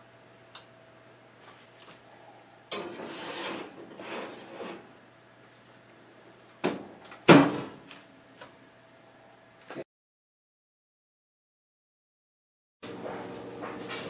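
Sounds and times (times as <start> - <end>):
metal pan scraping on oven rack: 2.7 - 4.9
oven door banging shut: 6.6 - 7.8.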